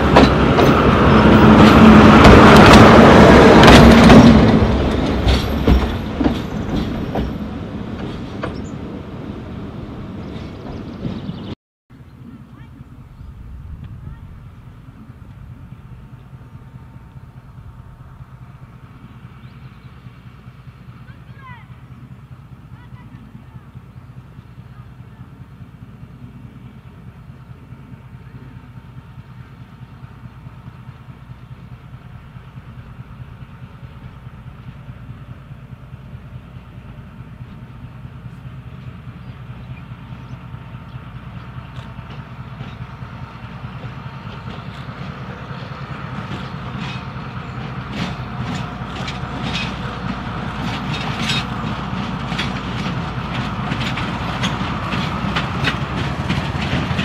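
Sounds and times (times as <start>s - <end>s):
train wheels clicking over rail joints: 0.0s - 11.4s, 23.8s - 57.0s
diesel locomotive engine drone: 0.0s - 57.0s.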